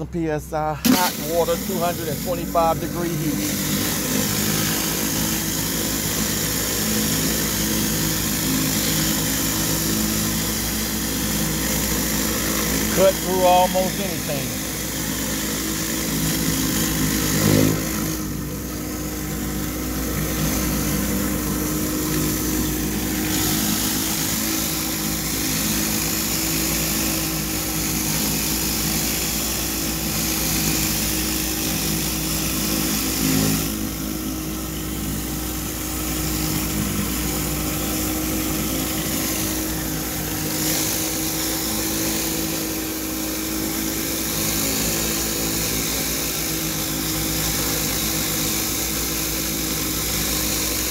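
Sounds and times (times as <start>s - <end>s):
pump engine drone: 0.0s - 50.9s
pressure washer spray hiss: 0.8s - 18.4s, 20.4s - 34.0s, 34.6s - 50.9s.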